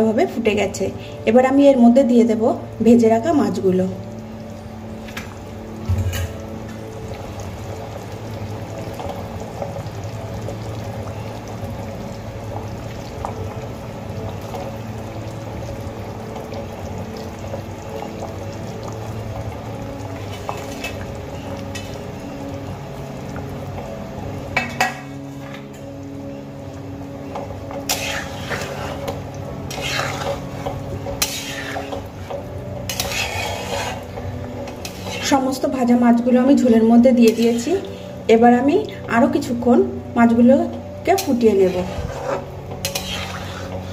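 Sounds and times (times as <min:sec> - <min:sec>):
broth bubbling: 0:04.1 - 0:39.1
metal knocking against pan: 0:05.9 - 0:06.4.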